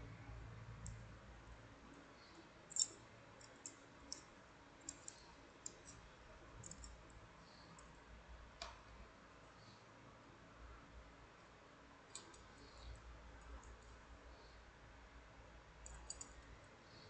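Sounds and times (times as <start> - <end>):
metal wire puzzle clicking: 2.7 - 6.0, 6.6 - 7.0, 12.1 - 12.7, 15.8 - 16.4.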